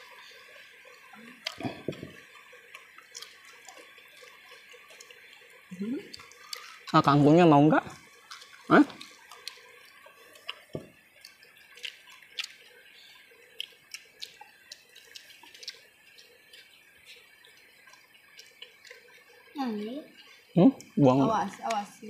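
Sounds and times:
faint steady hiss: 0:00.0 - 0:22.0
chewing and eating clicks: 0:00.9 - 0:07.0, 0:08.2 - 0:19.5.

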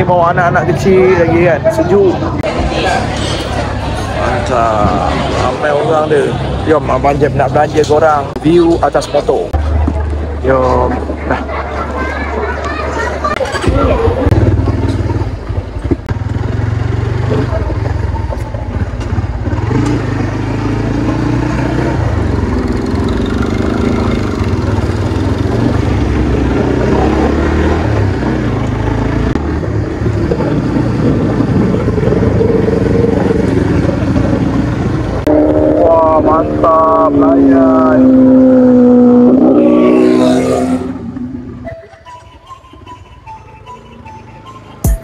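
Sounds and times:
motorcycle engine accelerating: 0:13.2 - 0:43.0
wind rumble: 0:22.0 - 0:41.7.

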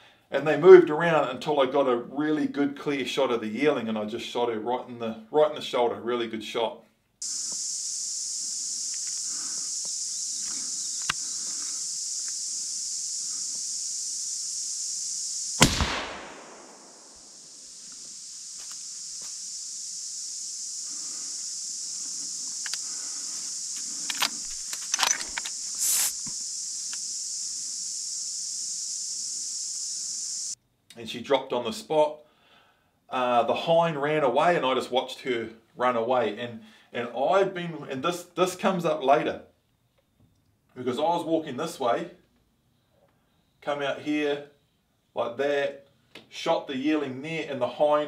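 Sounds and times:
steady high hiss: 0:07.2 - 0:30.6
small clicks: 0:09.8 - 0:11.2, 0:22.5 - 0:22.9, 0:23.8 - 0:27.0
suppressed rifle shot: 0:15.6 - 0:17.4.

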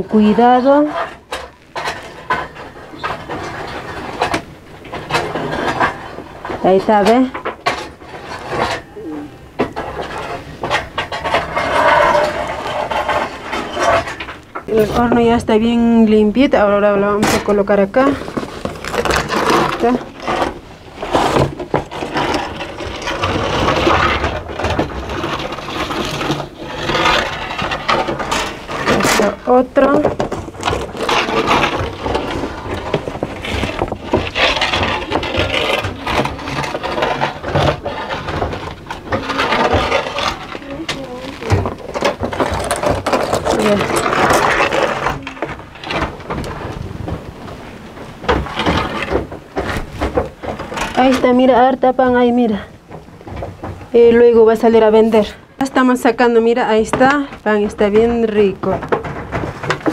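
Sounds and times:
wooden peel scraping oven floor: 0:00.0 - 0:59.9.

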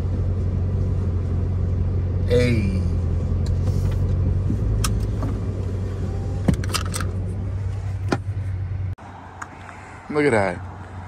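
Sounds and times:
car engine idling: 0:00.0 - 0:11.0
sharp clicks and rattles: 0:06.5 - 0:07.2.

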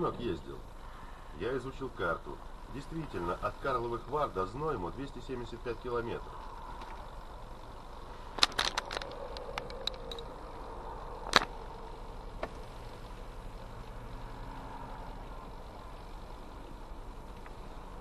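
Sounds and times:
car engine idling: 0:00.0 - 0:18.0
sharp clicks: 0:08.4 - 0:10.4, 0:11.2 - 0:11.6.

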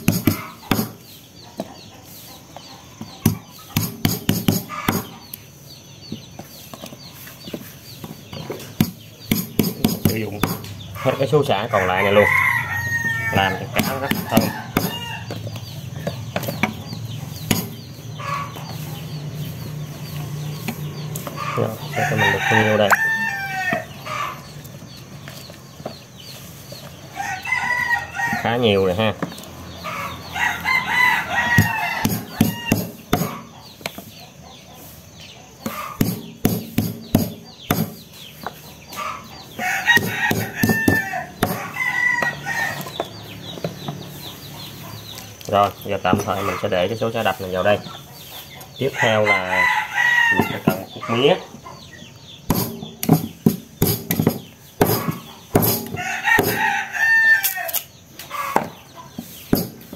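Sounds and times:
stalks being pounded: 0:00.0 - 0:01.0, 0:03.2 - 0:05.3, 0:08.0 - 0:10.7, 0:13.7 - 0:15.1, 0:16.0 - 0:17.8, 0:31.5 - 0:34.1, 0:35.6 - 0:38.2, 0:39.8 - 0:42.4, 0:52.4 - 0:56.7, 0:58.5 - 0:59.9
bird chirping: 0:00.0 - 0:59.9
rooster crowing: 0:11.0 - 0:15.4, 0:21.6 - 0:24.4, 0:27.1 - 0:28.9, 0:29.8 - 0:33.0, 0:39.1 - 0:43.0, 0:48.8 - 0:51.3, 0:54.9 - 0:58.7.

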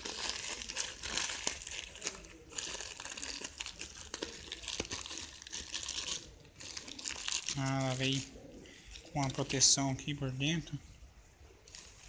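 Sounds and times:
plastic bag crinkling: 0:00.0 - 0:10.8, 0:11.6 - 0:12.0.

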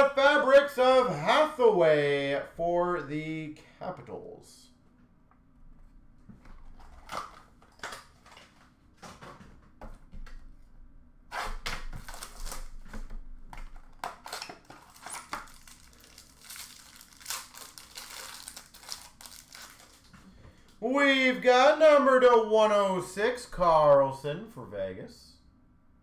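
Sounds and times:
card pack wrappers tearing and crinkling: 0:11.3 - 0:13.0, 0:13.6 - 0:20.2.

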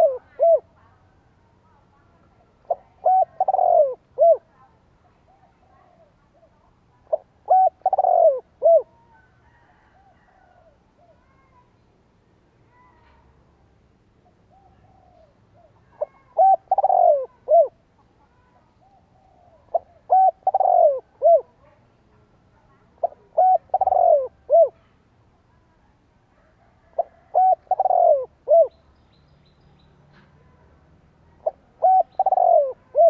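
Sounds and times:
dove cooing: 0:00.0 - 0:00.7, 0:02.6 - 0:04.5, 0:05.3 - 0:11.2, 0:14.5 - 0:17.8, 0:18.8 - 0:21.6, 0:23.0 - 0:24.9, 0:26.4 - 0:28.8, 0:31.4 - 0:33.0.

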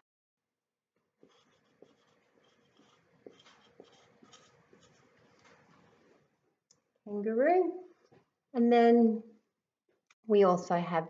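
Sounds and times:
marker scratching on whiteboard: 0:01.2 - 0:06.3.

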